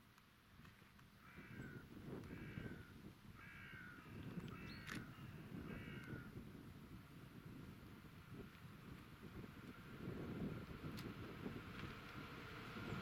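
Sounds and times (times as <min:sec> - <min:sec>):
bird calling: 0:01.2 - 0:06.2.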